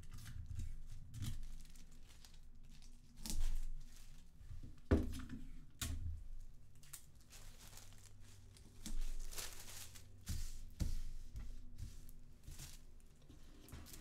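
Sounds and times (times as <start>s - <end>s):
tissue paper crinkling: 1.3s - 4.3s, 6.8s - 14.0s.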